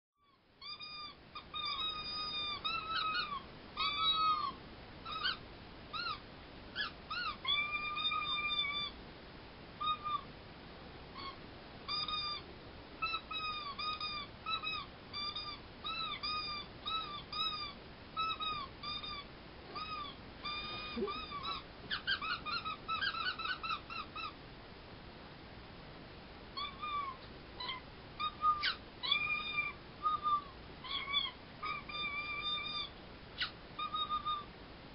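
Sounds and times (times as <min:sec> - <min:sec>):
toy squeakers squeaking: 0:00.6 - 0:04.5, 0:13.0 - 0:24.3, 0:26.6 - 0:34.4.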